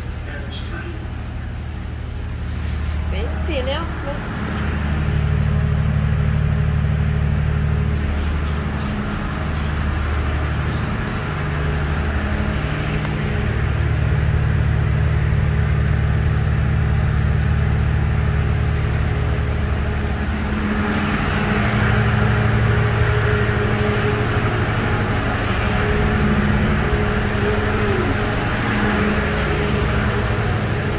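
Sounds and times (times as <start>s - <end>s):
diesel train engine idling: 0.0s - 30.9s.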